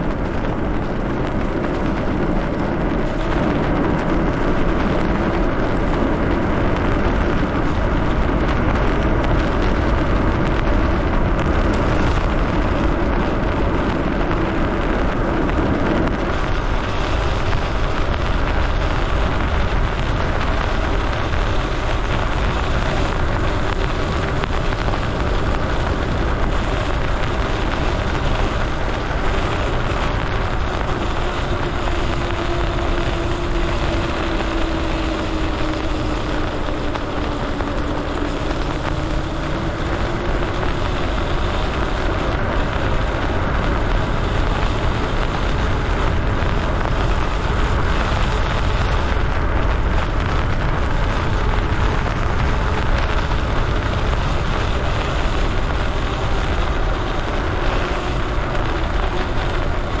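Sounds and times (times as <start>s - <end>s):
electric motor whine: 0.0s - 60.0s
wet tyres hissing on road: 0.0s - 60.0s
wind rushing over microphone: 0.0s - 60.0s.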